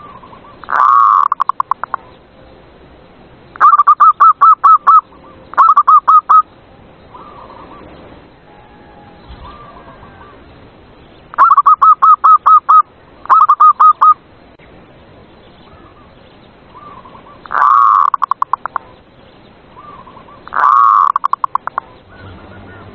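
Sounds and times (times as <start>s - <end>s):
doves cooing: 0.0s - 2.2s, 7.1s - 10.5s, 11.3s - 14.2s, 16.7s - 19.0s, 19.8s - 22.9s.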